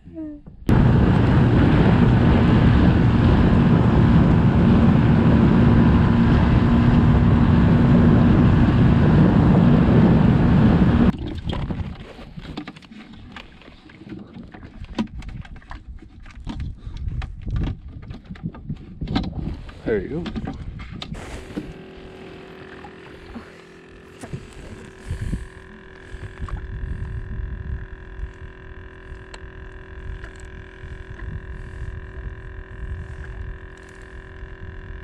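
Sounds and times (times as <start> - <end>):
boat motor noise: 0.0 - 16.6, 17.6 - 35.0
wind rushing on microphone: 0.7 - 12.5, 16.4 - 21.8, 24.3 - 35.0
water off boat hull: 11.1 - 34.8.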